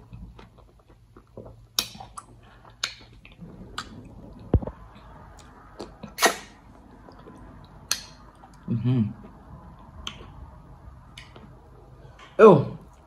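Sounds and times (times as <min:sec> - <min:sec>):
chewing: 0:00.0 - 0:12.3
wet sucking and smacking: 0:00.3 - 0:08.7, 0:09.3 - 0:12.0
lip smacks: 0:00.4 - 0:08.7, 0:09.8 - 0:11.6.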